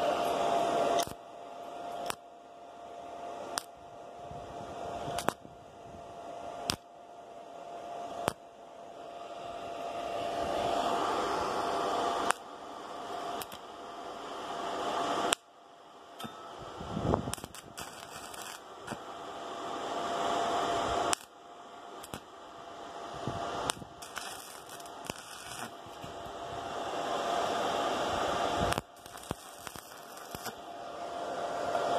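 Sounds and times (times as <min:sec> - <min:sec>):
welding arc crackling and hissing: 0:00.9 - 0:01.2, 0:01.9 - 0:02.2, 0:03.5 - 0:03.8, 0:05.1 - 0:05.5, 0:06.6 - 0:06.9, 0:08.2 - 0:08.4, 0:10.6 - 0:15.5, 0:16.5 - 0:31.6
welding arc click: 0:01.0 - 0:01.2, 0:02.0 - 0:02.2, 0:03.6 - 0:03.8, 0:05.2 - 0:05.4, 0:06.7 - 0:06.9, 0:12.2 - 0:12.4, 0:13.4 - 0:13.6, 0:15.3 - 0:15.5, 0:17.3 - 0:19.0, 0:21.1 - 0:21.4, 0:22.0 - 0:22.3, 0:23.6 - 0:26.3, 0:28.7 - 0:30.6.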